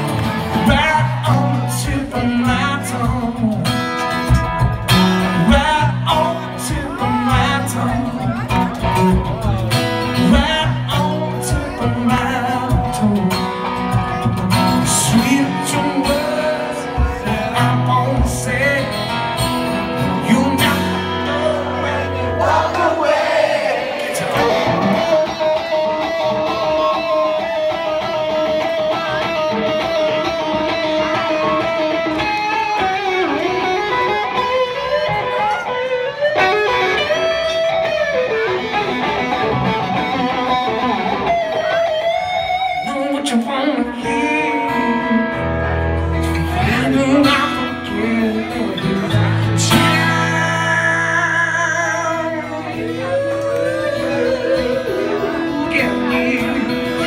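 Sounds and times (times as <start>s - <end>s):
electric guitar through amplifier: 24.1s - 57.0s.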